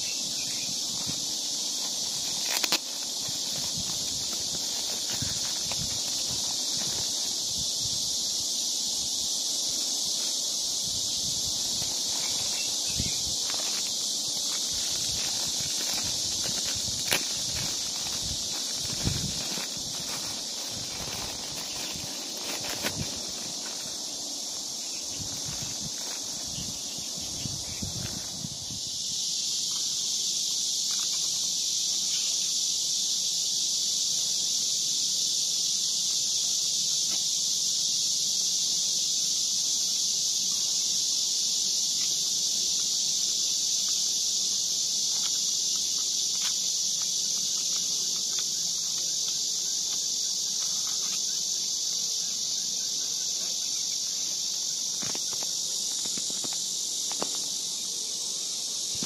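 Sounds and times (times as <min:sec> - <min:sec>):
insect chorus buzzing: 0:00.0 - 0:59.0.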